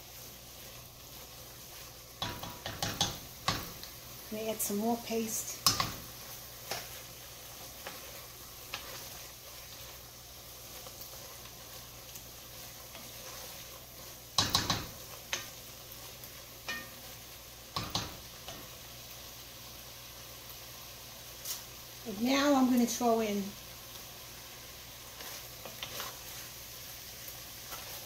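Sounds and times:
wooden spoon stirring: 0:00.0 - 0:18.7, 0:25.0 - 0:26.6
vegetables sizzling in a pot: 0:00.0 - 0:28.0
spoon knocking against pot: 0:02.2 - 0:03.8, 0:14.4 - 0:15.0, 0:17.8 - 0:18.2.

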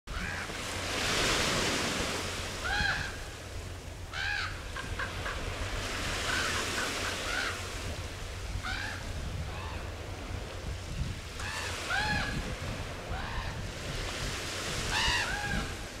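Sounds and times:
wind: 0:00.0 - 0:16.0
raven calling: 0:02.6 - 0:03.2, 0:04.1 - 0:05.3, 0:06.2 - 0:07.7, 0:08.6 - 0:09.9, 0:14.8 - 0:15.8.

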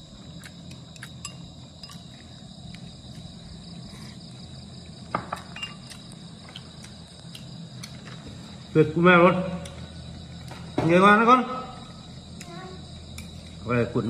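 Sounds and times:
man chewing food: 0:00.0 - 0:08.7
crickets trilling: 0:00.0 - 0:14.0
sharp clink: 0:05.5 - 0:06.0.

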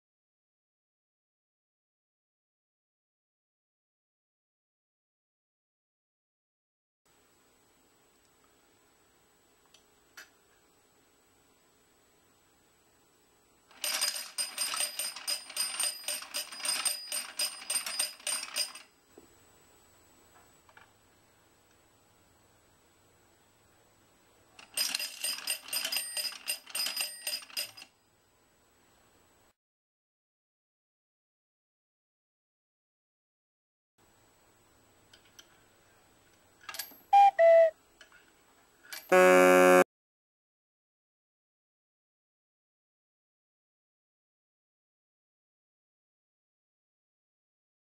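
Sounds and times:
small bell ringing: 0:13.9 - 0:18.8, 0:25.0 - 0:27.8
chime tones: 0:37.2 - 0:37.7.

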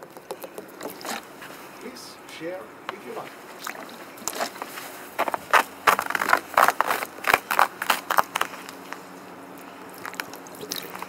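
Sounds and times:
footsteps crunching on snow: 0:00.8 - 0:01.9, 0:03.0 - 0:09.1.

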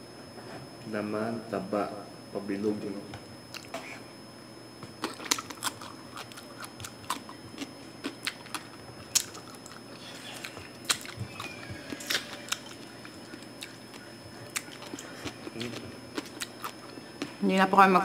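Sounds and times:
chewing crunchy pork skin: 0:05.0 - 0:17.3.

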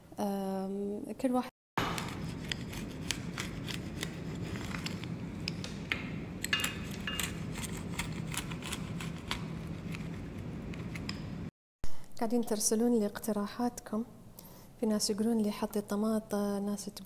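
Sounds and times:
pizza cutter crunching crust: 0:01.9 - 0:05.2, 0:07.2 - 0:11.0.

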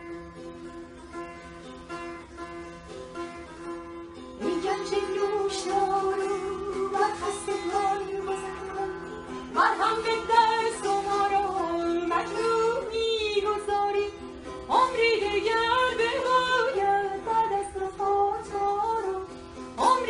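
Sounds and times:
long-necked plucked lute: 0:00.0 - 0:20.0
woman singing: 0:04.4 - 0:20.0.

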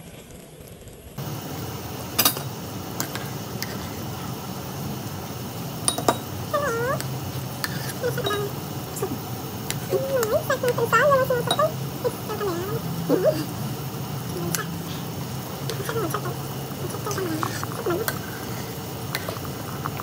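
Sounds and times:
soup bubbling in a pot: 0:01.2 - 0:20.0
metal ladle clinking on pot: 0:05.8 - 0:06.3
cat meowing: 0:06.5 - 0:07.0.

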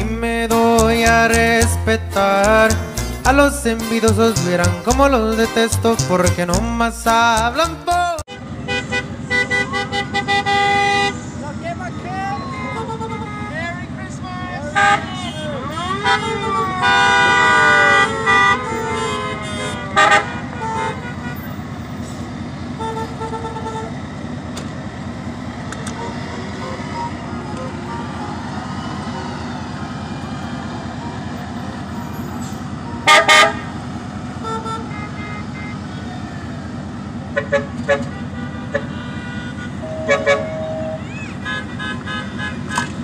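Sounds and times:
low engine and road rumble: 0:00.0 - 0:43.0
vehicle horns honking: 0:01.1 - 0:21.9, 0:22.8 - 0:24.0, 0:25.8 - 0:28.6, 0:31.0 - 0:33.8, 0:34.4 - 0:36.4, 0:37.3 - 0:43.0
siren falling in pitch: 0:26.5 - 0:31.4, 0:39.8 - 0:41.4.

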